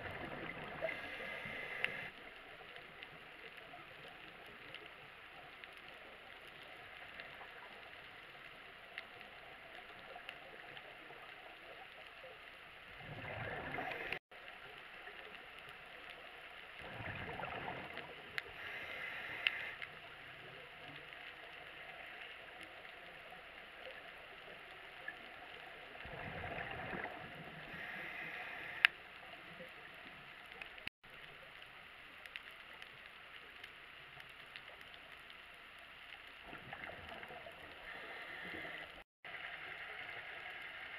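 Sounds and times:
regulator bubbles gurgling: 0.0 - 2.2, 12.9 - 14.2, 16.8 - 19.0, 26.0 - 28.8
faint underwater hiss: 0.0 - 40.9.

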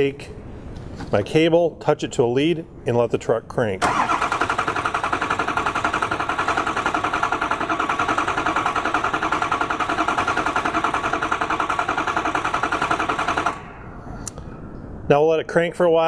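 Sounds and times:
diesel engine cranking on starter: 3.8 - 13.7.

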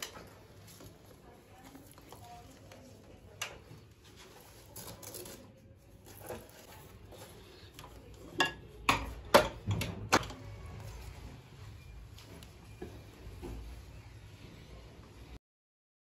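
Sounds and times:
rustling of parts: 0.0 - 8.4.

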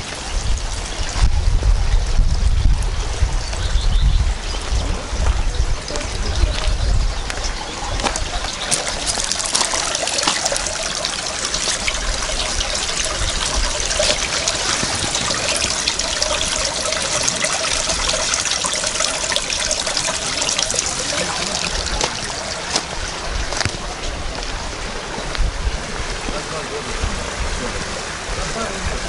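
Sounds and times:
spring water splashing into pool: 8.0 - 23.9.

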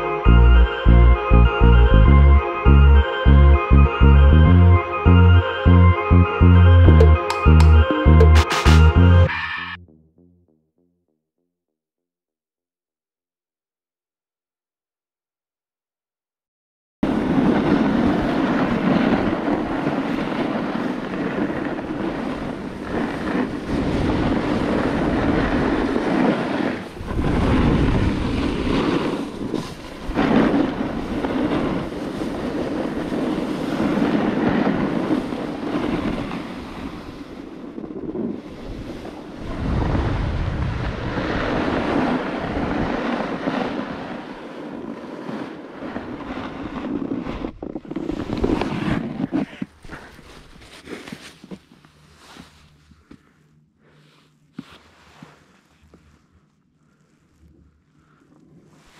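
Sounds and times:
wind rushing over microphone: 17.0 - 50.8
snowboard hissing over snow: 17.1 - 37.6.

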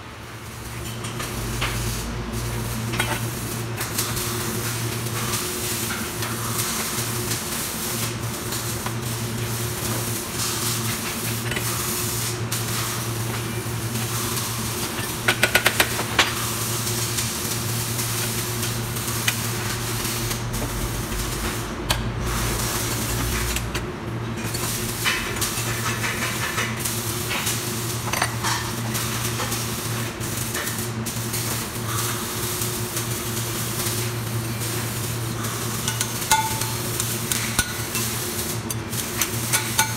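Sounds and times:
factory hum and hiss: 0.0 - 39.9
steel parts clinking: 35.9 - 36.8.

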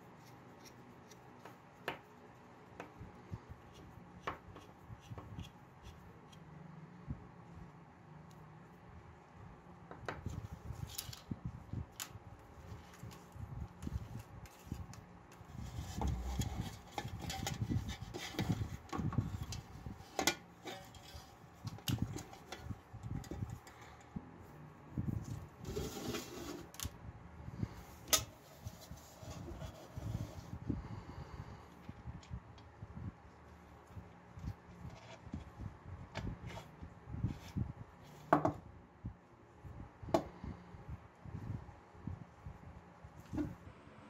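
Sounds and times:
hands handling metal lamp parts: 11.9 - 24.0.

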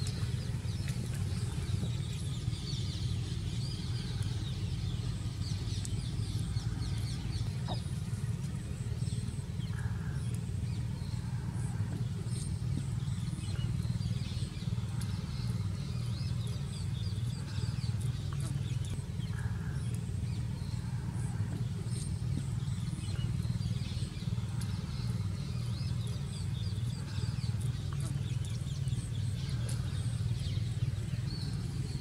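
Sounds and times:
small birds chirping: 0.0 - 32.0
steady low hum: 0.0 - 32.0
faint clicks: 21.2 - 30.2.

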